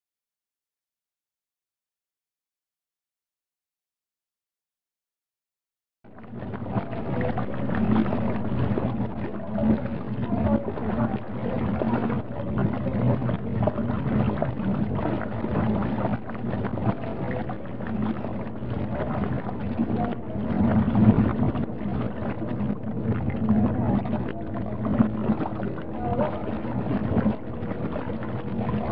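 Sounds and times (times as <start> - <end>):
water churning and splashing: 6.1 - 28.9.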